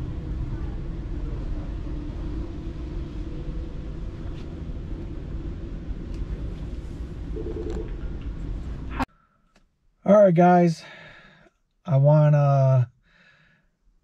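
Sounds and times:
store background rumble: 0.0s - 9.1s.

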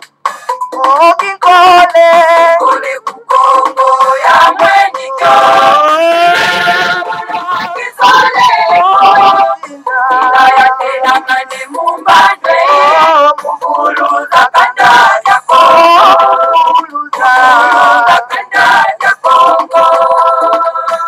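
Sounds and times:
song with singing voices: 0.0s - 21.0s.

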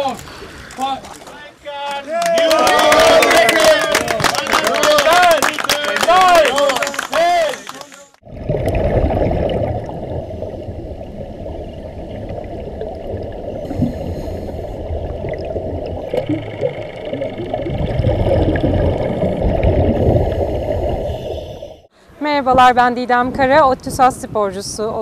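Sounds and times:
muffled sea water rushing: 8.2s - 21.9s.

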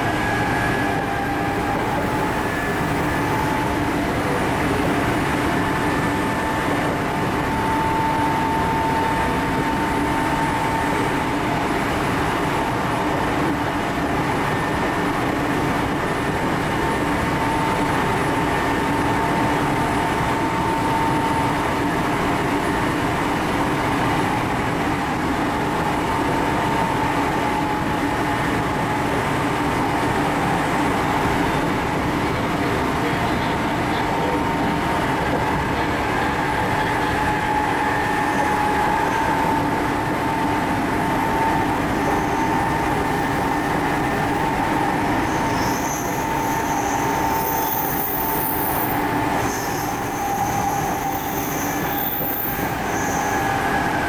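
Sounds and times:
wheels rumbling on rail: 0.0s - 54.0s.

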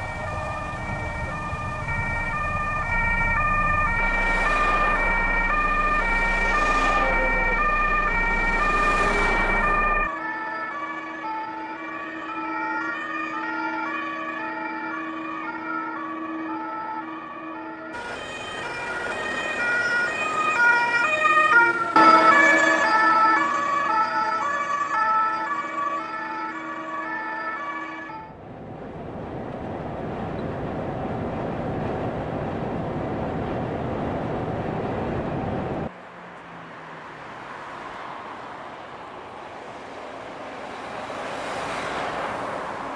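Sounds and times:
two-tone emergency siren: 0.0s - 28.4s.

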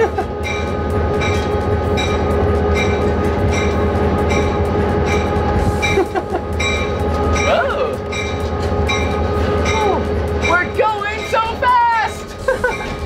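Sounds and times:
locomotive bell ringing: 0.0s - 13.0s
locomotive engine drone: 0.0s - 13.0s.

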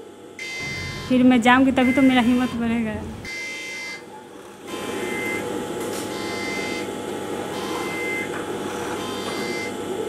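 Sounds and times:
high whine: 0.4s - 3.5s
sewing machine running: 0.6s - 9.8s.

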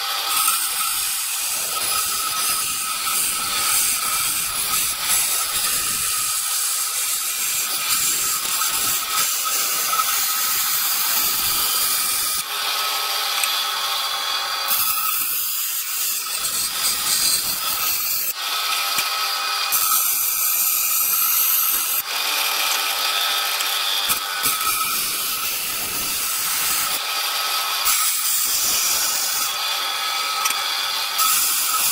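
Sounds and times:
bandsaw cutting metal plate: 0.0s - 31.9s.

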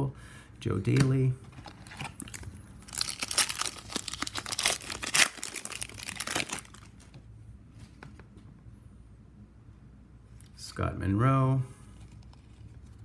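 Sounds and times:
wrapper crinkling and tearing: 1.6s - 7.0s.

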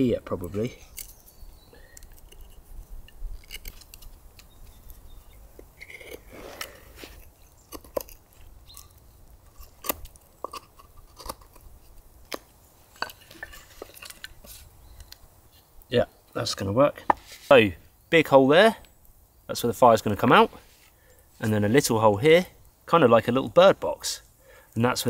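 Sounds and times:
wood chips cracking: 0.0s - 17.7s
knife carving into wood: 0.7s - 15.1s
soft scraping of wood: 2.0s - 8.5s, 12.9s - 14.8s, 17.0s - 17.6s, 20.4s - 21.6s.

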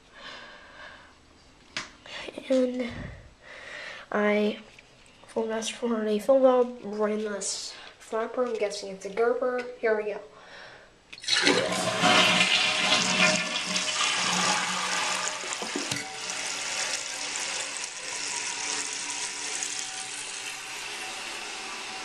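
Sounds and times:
toilet flushing: 11.2s - 22.0s.

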